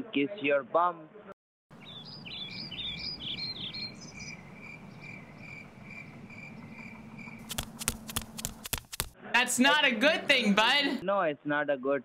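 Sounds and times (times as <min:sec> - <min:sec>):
warbling bird chirps: 0:01.8 - 0:07.5
sharp clicks: 0:07.4 - 0:09.2.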